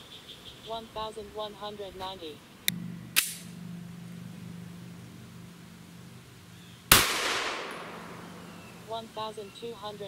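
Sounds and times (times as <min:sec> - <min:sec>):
pistol shot: 0:03.2 - 0:03.5, 0:06.9 - 0:08.5.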